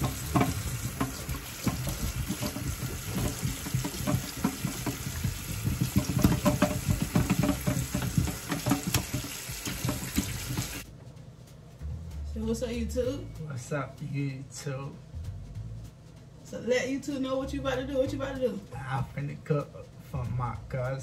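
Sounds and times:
hands rinsing under water: 0.0 - 10.8
tap water running: 0.0 - 10.9.

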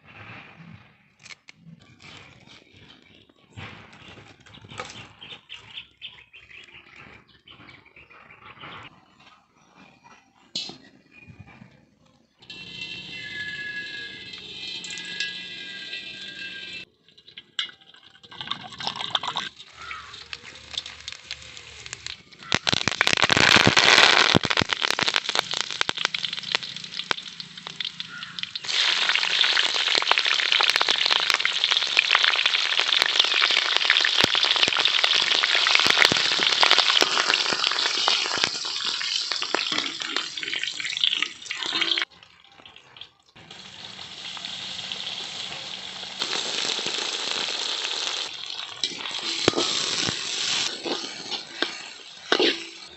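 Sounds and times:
hot oil sizzling and crackling: 12.5 - 52.9.

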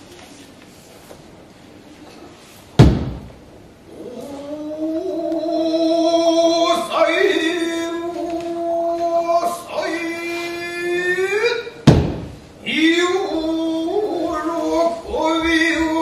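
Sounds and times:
loud thud: 2.8 - 3.4, 11.8 - 12.6.

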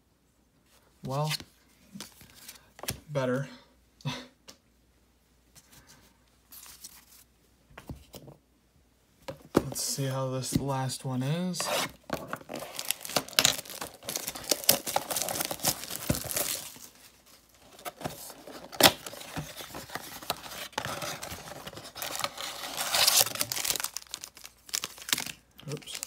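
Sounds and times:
packaging tearing and crinkling: 11.6 - 26.0.

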